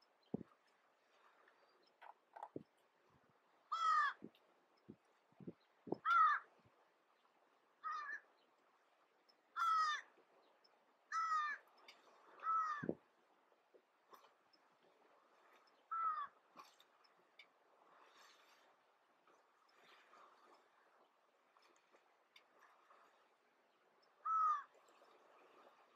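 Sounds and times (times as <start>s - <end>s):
crows cawing: 3.7s - 4.2s, 6.0s - 6.5s, 7.8s - 8.2s, 9.6s - 10.1s, 11.1s - 11.6s, 12.4s - 13.0s, 15.9s - 16.4s, 24.2s - 24.7s.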